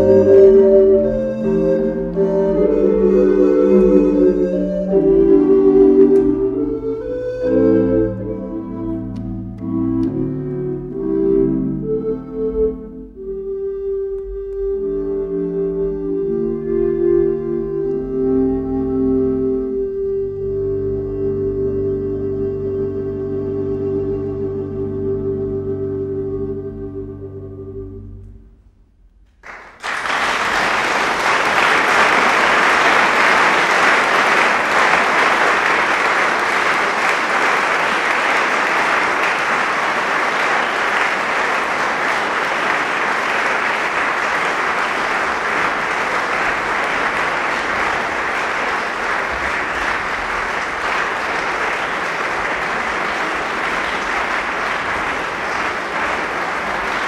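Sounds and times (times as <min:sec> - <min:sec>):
crowd applauding: 0:29.4 - 0:57.0.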